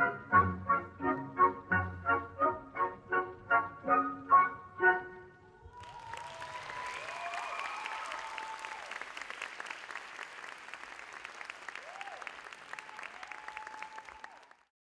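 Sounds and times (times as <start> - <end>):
audience applauding: 5.7 - 14.7.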